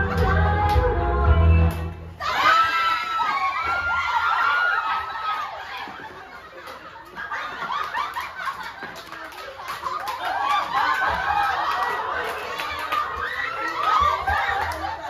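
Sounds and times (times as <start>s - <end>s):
crowd laughing and calling out: 2.2s - 15.0s.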